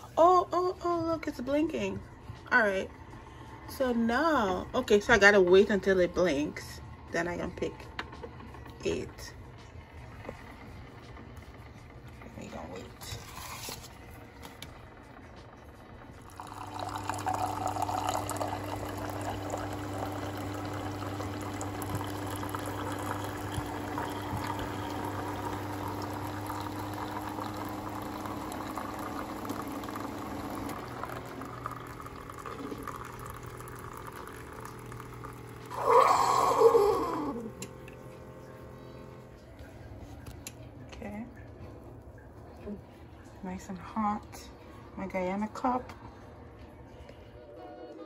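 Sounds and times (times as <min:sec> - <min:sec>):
coffee maker pump hum: 0:00.0 - 0:47.5
coffee stream filling mug: 0:16.1 - 0:39.3.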